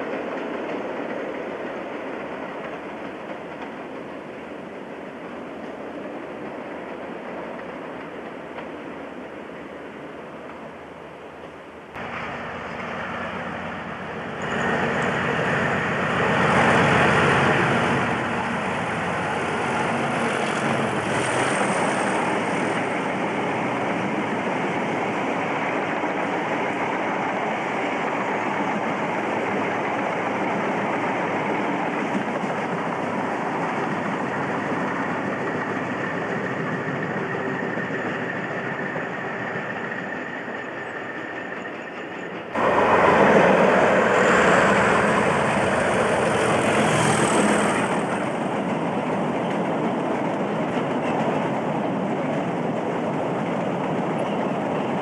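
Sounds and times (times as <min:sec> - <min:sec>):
diesel locomotive engine: 0:00.0 - 0:55.0.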